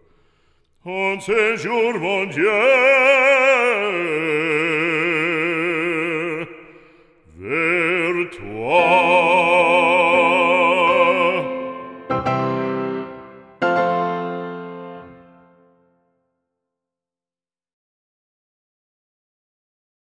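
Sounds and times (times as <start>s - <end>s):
operatic voice singing: 0.8s - 12.3s.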